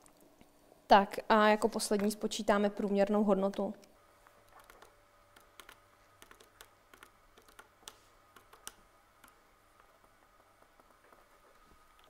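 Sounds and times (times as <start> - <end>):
calculator keys clicking: 4.5 - 9.4.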